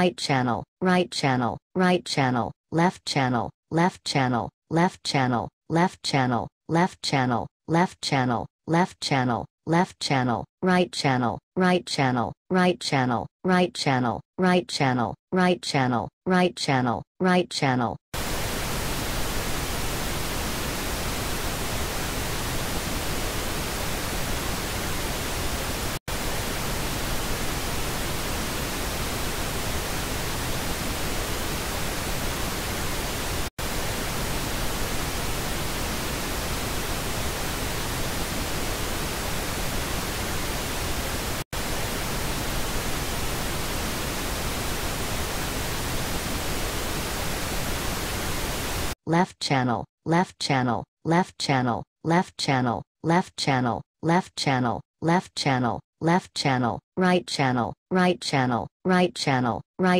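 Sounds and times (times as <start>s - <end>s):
pink noise hiss: 18.2s - 49.0s.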